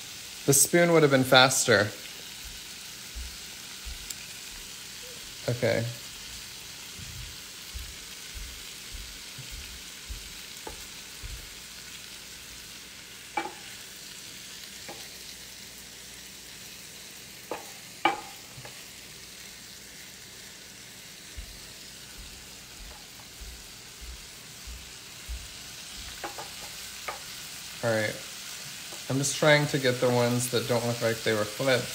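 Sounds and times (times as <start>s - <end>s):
shrimp sizzling in a frying pan: 0.0s - 31.9s
spatula tapping and scraping pan: 9.4s - 11.6s, 13.4s - 13.8s, 14.8s - 15.1s, 17.5s - 18.8s, 25.4s - 27.4s.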